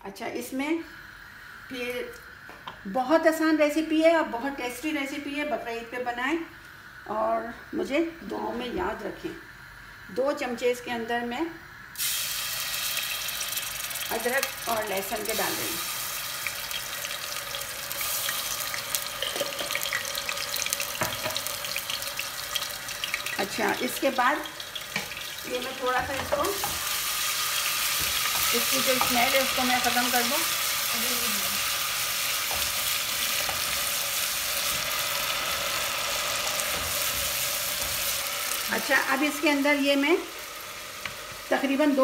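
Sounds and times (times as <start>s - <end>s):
paste sizzling in hot oil: 11.8s - 42.0s.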